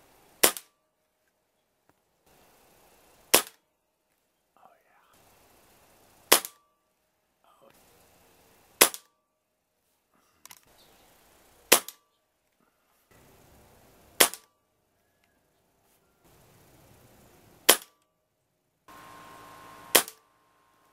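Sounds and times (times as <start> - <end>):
air rifle shots: 0.4 - 0.7, 3.3 - 3.6, 6.3 - 6.6, 8.8 - 9.1, 11.7 - 12.0, 14.2 - 14.5, 17.7 - 18.0, 19.9 - 20.2.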